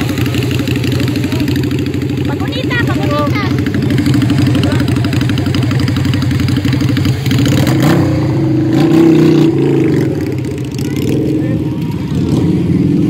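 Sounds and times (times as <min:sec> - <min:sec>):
motorcycle engine revving: 0:00.0 - 0:13.0
motorcycle engines idling: 0:00.0 - 0:13.0.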